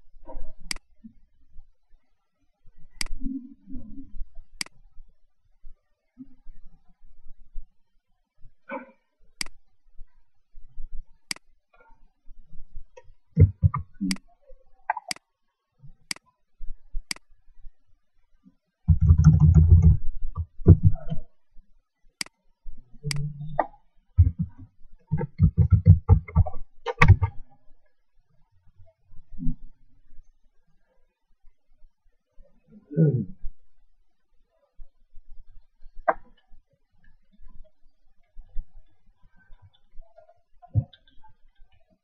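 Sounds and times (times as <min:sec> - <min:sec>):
laptop keyboard typing: 0:13.4 - 0:13.8, 0:18.9 - 0:20.9, 0:24.2 - 0:27.3.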